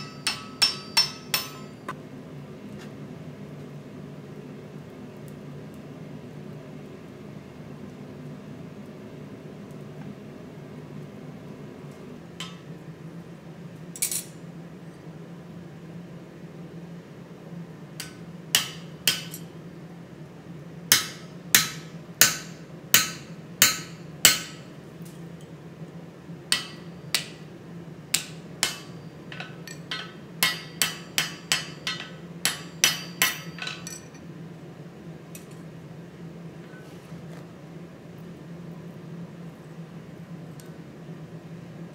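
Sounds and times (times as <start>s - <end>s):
hammer striking metal punch: 0.0s - 1.9s, 18.0s - 19.4s, 20.9s - 24.6s, 26.5s - 27.4s, 28.1s - 34.0s
steady low hum: 0.0s - 41.9s.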